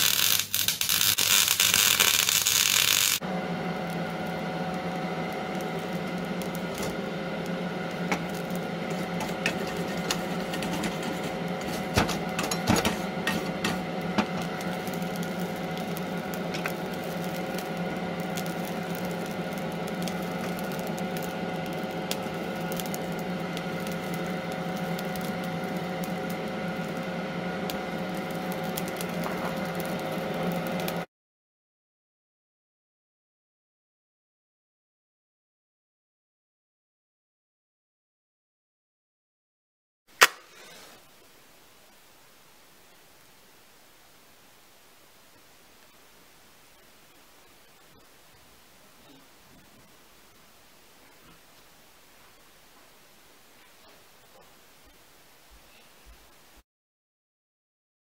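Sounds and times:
forge humming: 0.0 - 31.1, 40.2 - 56.6
metal clicks and scrapes: 8.9 - 14.5.

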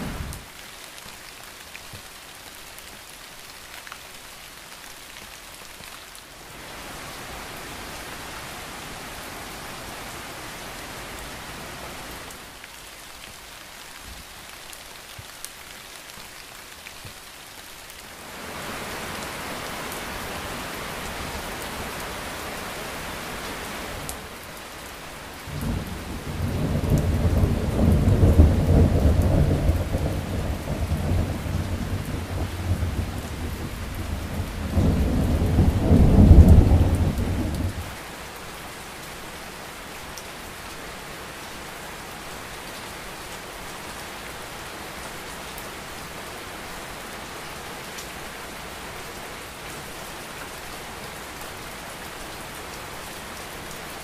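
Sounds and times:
rain hissing: 0.0 - 2.4, 6.2 - 16.9, 17.7 - 45.0
thunder rumbling: 25.5 - 37.9.

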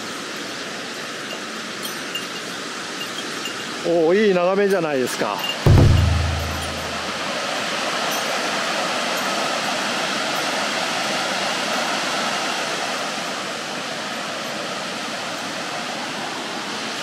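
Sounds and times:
waterfall roaring: 5.9 - 17.0.

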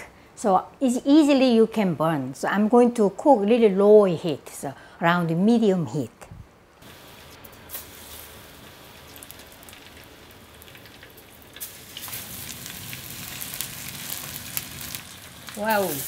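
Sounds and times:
oil sizzling in a frying pan: 6.8 - 16.0.

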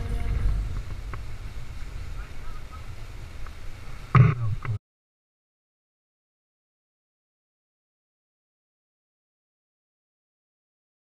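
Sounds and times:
wind rumble on microphone: 0.0 - 4.8.

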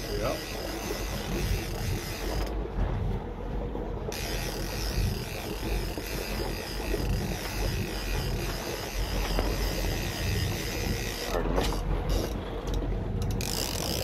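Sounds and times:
fishing reel ratcheting creak: 0.0 - 2.6, 4.1 - 14.0
low boat rumble: 0.0 - 14.0
wind on the microphone: 0.0 - 14.0.

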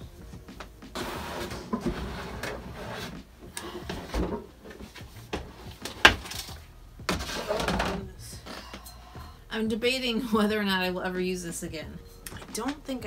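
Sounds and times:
plastic totes scraping and rustling: 7.1 - 8.1.

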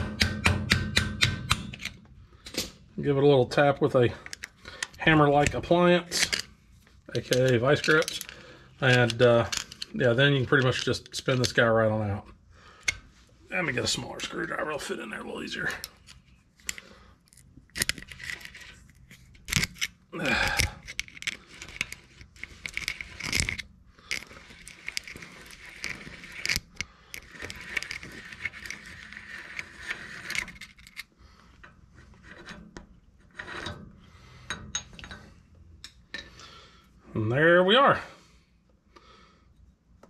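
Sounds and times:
sharp metal knocks: 0.0 - 1.8
steel tools scraping and clinking: 4.2 - 11.6, 15.6 - 36.5.

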